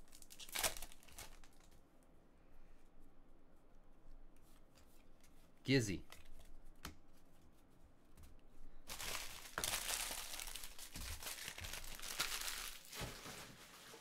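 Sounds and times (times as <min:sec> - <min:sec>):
foil wrappers crinkling: 0:00.0 - 0:01.8, 0:08.9 - 0:14.0.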